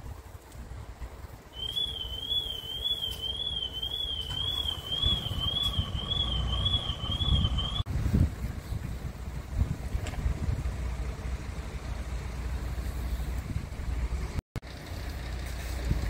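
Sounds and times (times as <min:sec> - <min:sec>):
wind buffeting microphone: 0:00.0 - 0:12.0, 0:13.2 - 0:14.3
high warbling electronic warning tone: 0:01.6 - 0:07.9.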